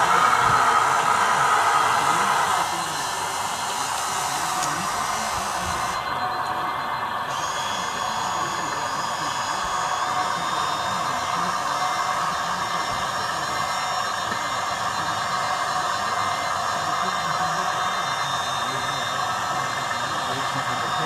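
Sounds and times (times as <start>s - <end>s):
small electric pump motor whirring: 0.0s - 21.0s.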